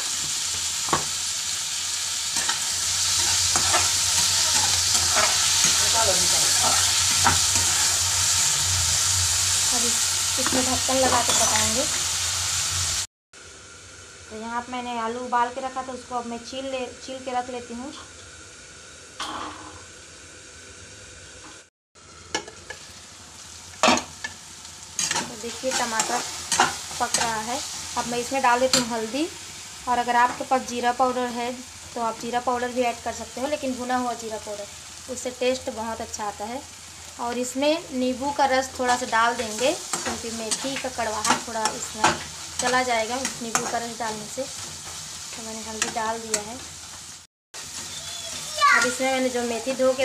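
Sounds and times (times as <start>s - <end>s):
vegetables sizzling in oil: 0.0s - 50.0s
spatula scraping and knocking pan: 2.4s - 8.0s.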